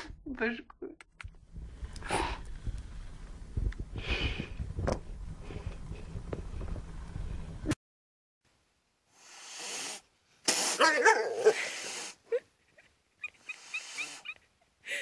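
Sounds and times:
cat yowling and growling: 0:10.8 - 0:11.7.

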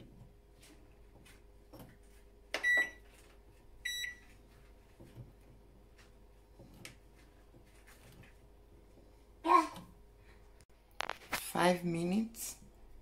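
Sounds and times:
microwave keypad beeps: 0:02.6 - 0:03.0, 0:03.8 - 0:04.3.

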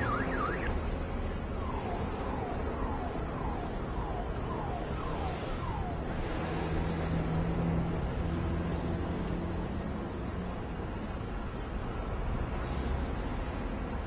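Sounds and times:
electronic siren chirping: 0:00.0 - 0:00.7
street traffic rumble: 0:00.0 - 0:14.0.

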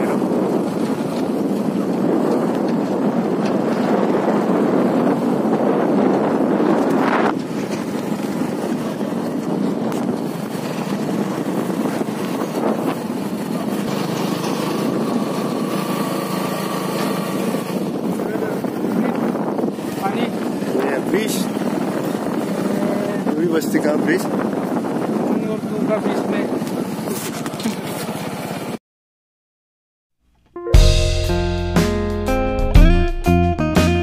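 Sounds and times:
motorbike engine: 0:00.0 - 0:28.8
wind on microphone: 0:00.0 - 0:28.8.

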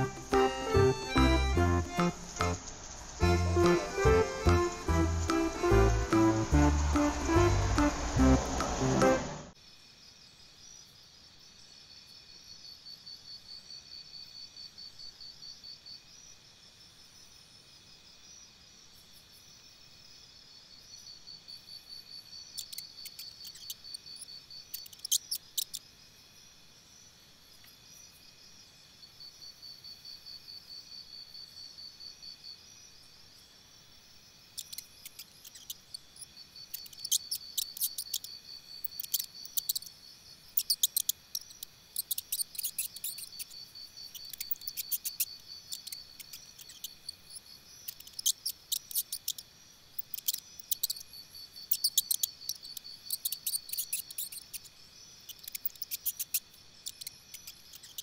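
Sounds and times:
insects trilling: 0:00.0 - 0:58.0
sharp high clicks: 0:40.6 - 0:47.2.

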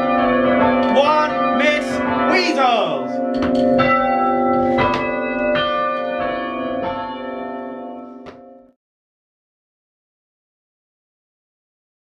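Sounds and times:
church bells ringing: 0:00.0 - 0:08.8.

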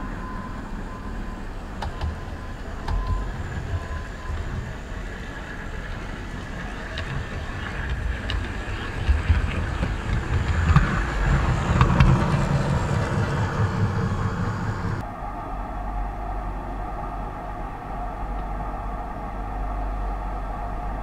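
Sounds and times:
model train running on track: 0:00.0 - 0:15.0
rail joint clicks: 0:01.6 - 0:15.0.

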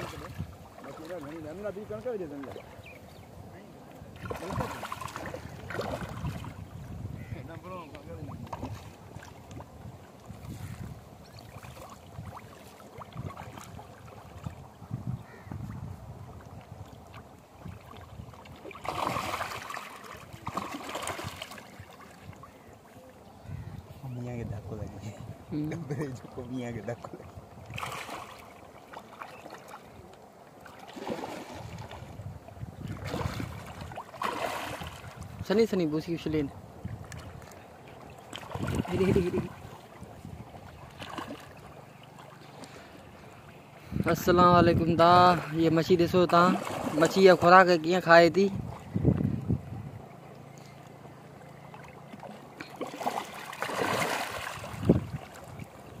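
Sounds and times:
fish splashing: 0:00.0 - 0:03.0, 0:04.1 - 0:07.4, 0:08.3 - 0:23.4, 0:27.7 - 0:32.0, 0:32.8 - 0:35.3, 0:36.9 - 0:43.8, 0:45.3 - 0:47.6, 0:50.6 - 0:56.0
water lapping at shore: 0:00.0 - 0:56.0.

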